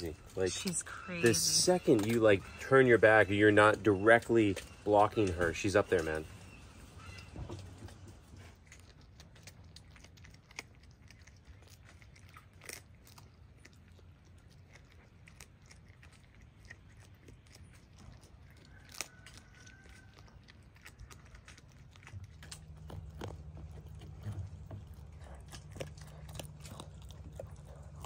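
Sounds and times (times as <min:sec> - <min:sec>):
fox chewing and crunching: 0:00.0 - 0:28.0.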